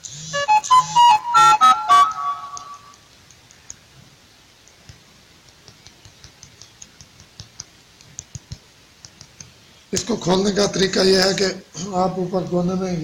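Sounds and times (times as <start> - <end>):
fingertip tapping a touchscreen: 4.7 - 10.1.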